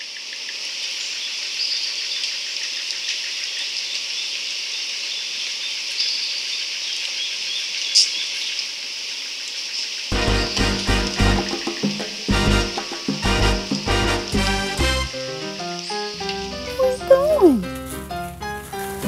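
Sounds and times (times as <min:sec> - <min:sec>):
steady high hiss: 0:07.7 - 0:18.4.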